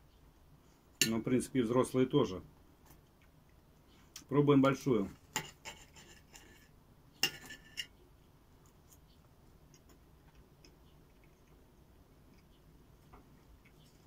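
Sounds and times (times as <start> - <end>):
cutlery scraping ceramic plate: 5.3 - 8.0.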